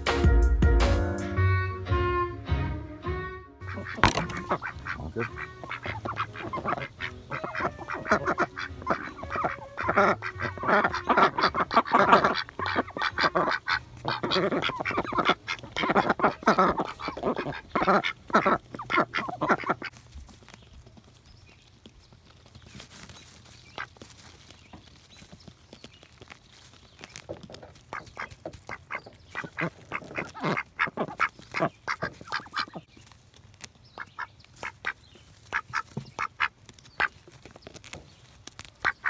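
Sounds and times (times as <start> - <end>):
ducks quacking: 3.6 - 20.1, 23.6 - 24.0, 27.5 - 32.9, 33.9 - 37.3, 38.7 - 39.0.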